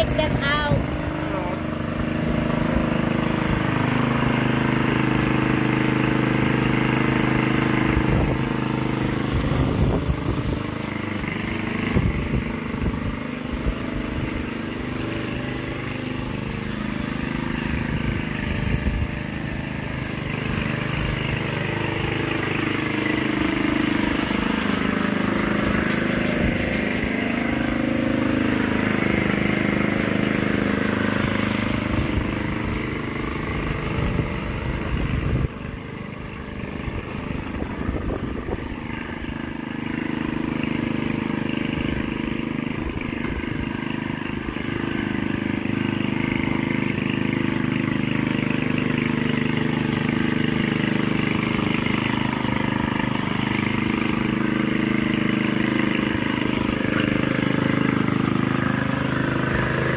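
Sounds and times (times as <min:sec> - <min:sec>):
lawn mower engine running: 0:00.0 - 0:59.9.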